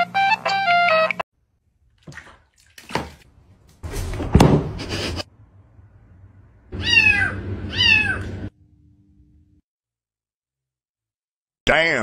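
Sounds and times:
water sloshing in plastic basin: 1.9s - 4.2s
cat meowing: 6.7s - 8.4s.

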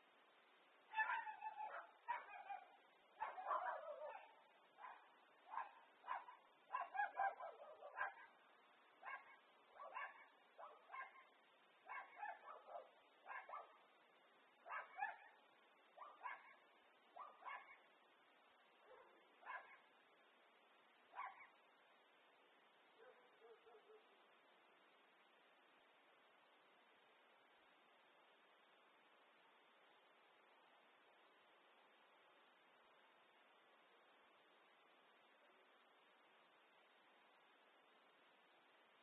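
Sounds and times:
dog barking: 0.9s - 8.4s, 9.0s - 13.8s, 14.6s - 15.4s, 16.0s - 17.9s, 18.8s - 19.9s, 21.1s - 21.6s, 23.0s - 24.2s.

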